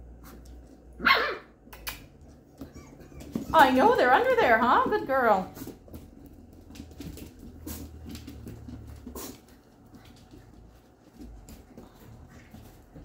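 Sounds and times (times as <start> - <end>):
puppy paws clicking on floor: 0.1 - 1.0, 1.6 - 13.0.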